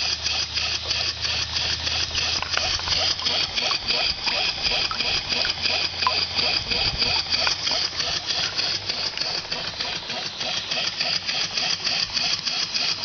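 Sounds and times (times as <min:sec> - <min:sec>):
model steam engine running: 0:00.0 - 0:13.0.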